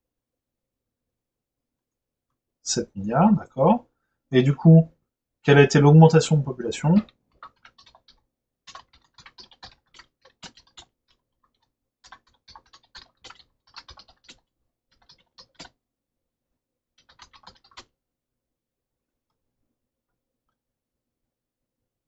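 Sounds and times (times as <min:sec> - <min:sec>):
typing on computer keyboard: 0:06.8 - 0:15.8, 0:17.0 - 0:17.9.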